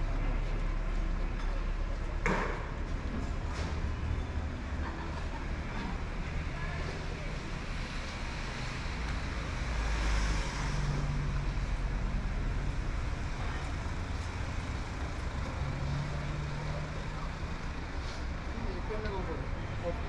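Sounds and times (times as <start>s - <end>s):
low engine hum: 0.0s - 20.0s
vehicle passing close: 7.7s - 12.8s.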